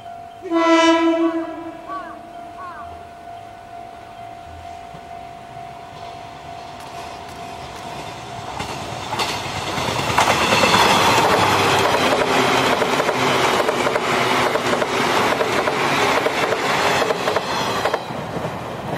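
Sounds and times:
electric train passing: 0:00.0 - 0:18.9
wheels clacking over rail joints: 0:05.9 - 0:18.9.

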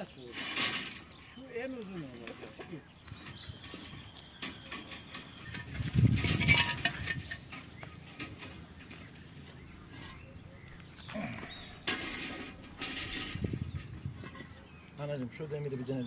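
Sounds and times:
rebar scraping rustle: 0:00.0 - 0:16.0.

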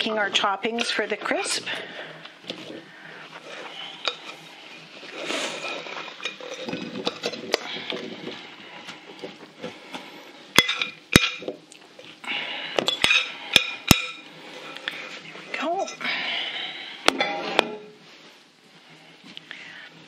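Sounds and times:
glass dishes clinking: 0:10.6 - 0:11.5, 0:12.9 - 0:14.2, 0:17.1 - 0:17.9.

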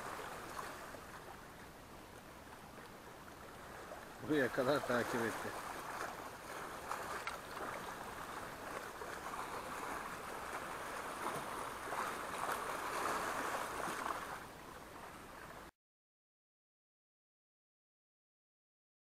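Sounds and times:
waves splashing on rocks: 0:03.8 - 0:14.4.

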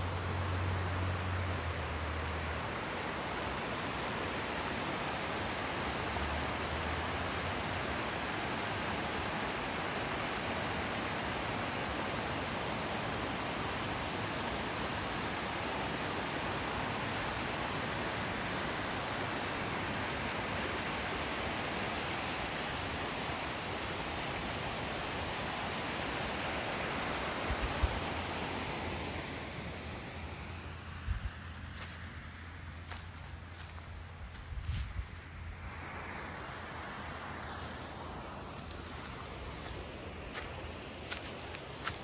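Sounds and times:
creek water over rapids: 0:00.0 - 0:42.0.

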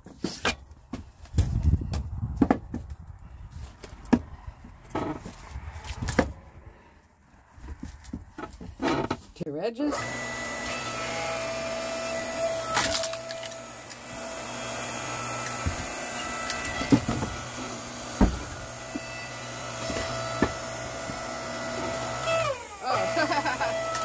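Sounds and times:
firewood knocking on stack: 0:01.4 - 0:03.0, 0:18.2 - 0:18.6.

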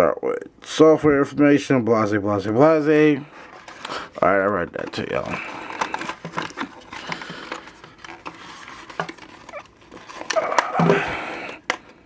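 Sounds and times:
cardboard rustling and scraping: 0:03.4 - 0:11.1.

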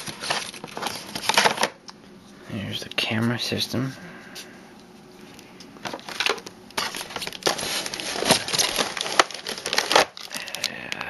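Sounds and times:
packaging rustling and crinkling: 0:00.0 - 0:01.8, 0:05.8 - 0:10.7.

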